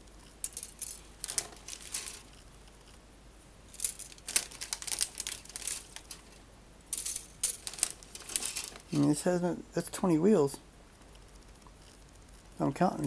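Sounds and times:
plastic sprues rustling and clicking: 0.4 - 3.0, 3.8 - 9.2.

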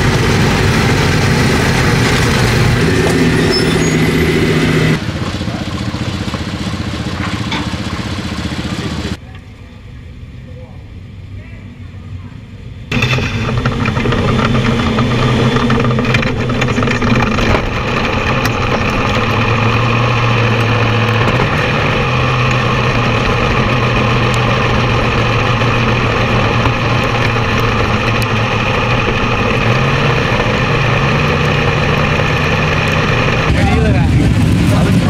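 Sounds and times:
race car engine running: 0.0 - 9.2, 12.9 - 35.0.

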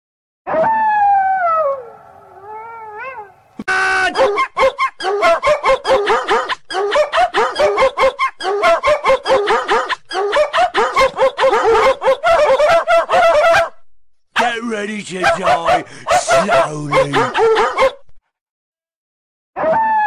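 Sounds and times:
short yips: 4.2 - 11.4.

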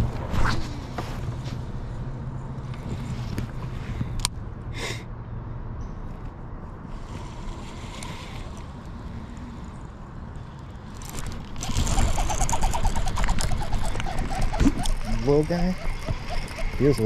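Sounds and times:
low rumble of wind: 0.0 - 17.0
water rumble: 6.8 - 17.0
fishing reel ticking: 10.9 - 17.0.

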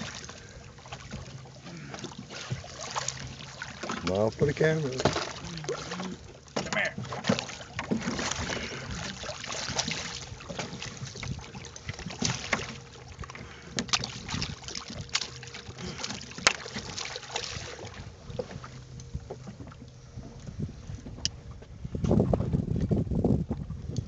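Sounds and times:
low steady hum: 0.0 - 24.0
water splashing against boat hull: 0.0 - 24.0
sharp splashes or knocks: 4.8 - 11.4
wind on microphone: 17.6 - 24.0.

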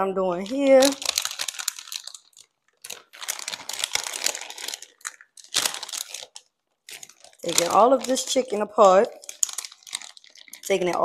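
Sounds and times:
hands tearing cooked chicken: 0.9 - 7.4, 9.2 - 10.7.

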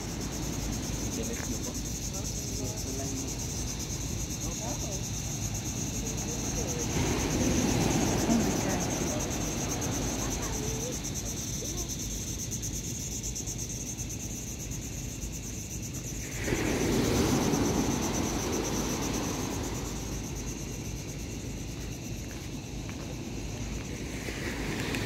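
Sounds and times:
insects trilling: 0.0 - 25.0
surf rushing: 6.4 - 10.8, 16.2 - 20.8.

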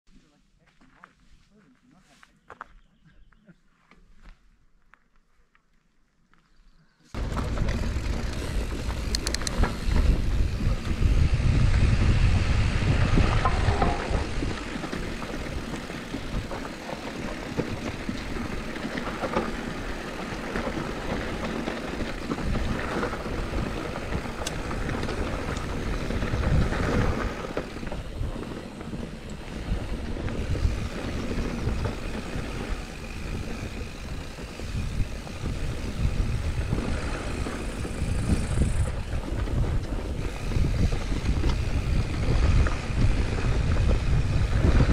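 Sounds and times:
wind rumbling on microphone: 7.1 - 44.9
bike clicks and knocks: 7.2 - 44.9
tyres rolling on dirt: 7.2 - 44.9.

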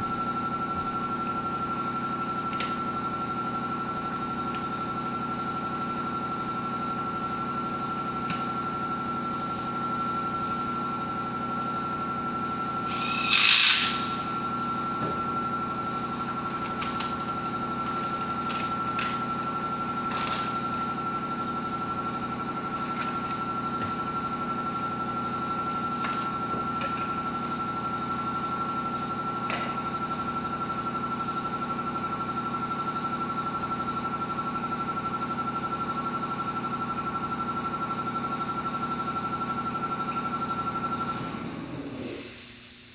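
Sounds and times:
mechanical hum with high whine: 0.0 - 42.9
loud burst of noise: 12.8 - 14.7.

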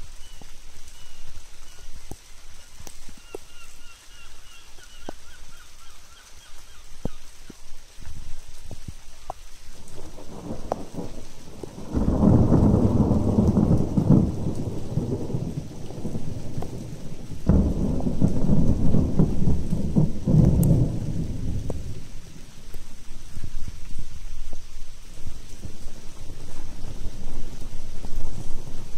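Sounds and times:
rain: 0.0 - 28.9
thunder rolling: 10.0 - 22.6, 25.4 - 28.9.

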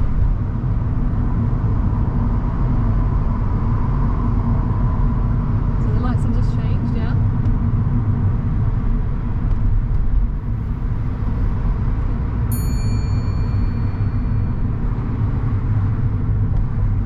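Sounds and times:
road and engine rumble in car: 0.0 - 17.0
short high-pitched chime: 12.5 - 15.0.

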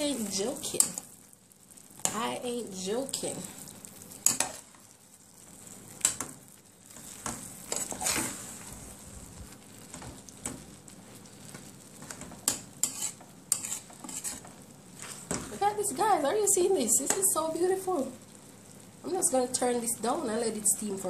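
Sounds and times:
sauce sizzling: 0.0 - 21.0
metal spoon scraping a pot: 7.7 - 8.4, 12.4 - 14.6.

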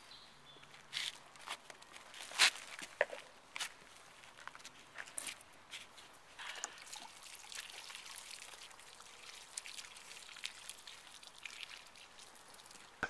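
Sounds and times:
water pouring onto soil: 6.4 - 13.0.

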